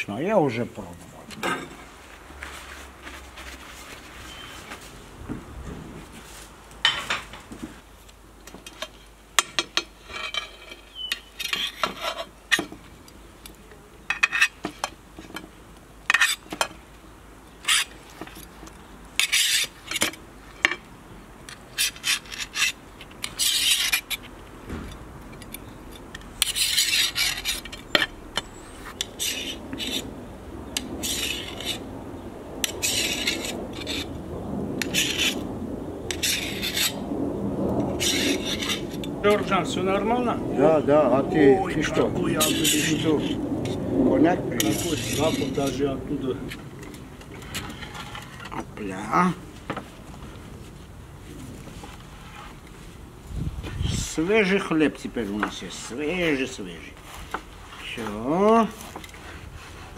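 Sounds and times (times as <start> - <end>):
knife scraping metal skewer: 17.6 - 17.9, 19.2 - 20.2, 21.8 - 24.2, 26.4 - 30.1, 31.0 - 31.8, 32.6 - 34.1, 34.8 - 35.4, 36.1 - 37.0, 38.0 - 38.9, 42.4 - 43.2, 44.6 - 45.8.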